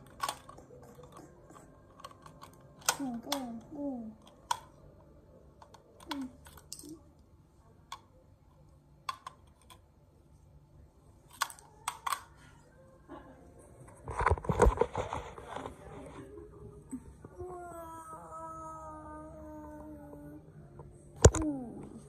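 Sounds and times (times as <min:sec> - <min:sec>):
plastic toy figures clacking: 0:00.0 - 0:01.2.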